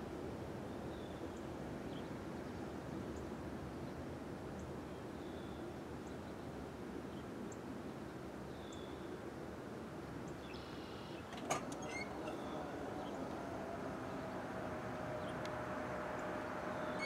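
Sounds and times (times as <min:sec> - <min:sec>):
faint bird chirps: 0:10.4 - 0:13.4
crossing gate mechanism click: 0:11.2 - 0:14.0, 0:14.6 - 0:17.0
low outdoor rumble: 0:11.2 - 0:17.0
gate motors humming: 0:11.3 - 0:17.0.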